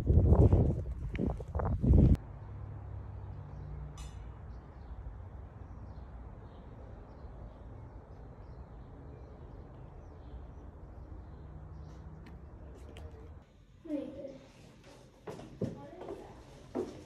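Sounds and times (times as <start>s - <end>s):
small birds chirping: 4.5s - 13.4s.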